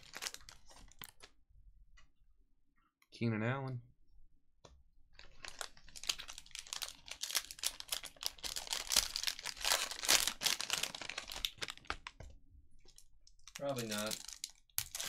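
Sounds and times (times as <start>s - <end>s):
plastic wrapper crinkling: 0.0s - 1.3s, 5.2s - 12.2s, 12.9s - 15.0s.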